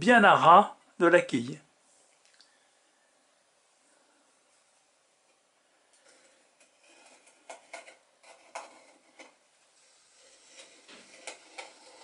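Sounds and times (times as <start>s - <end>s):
pencil scratching on wood: 6.0s - 12.0s.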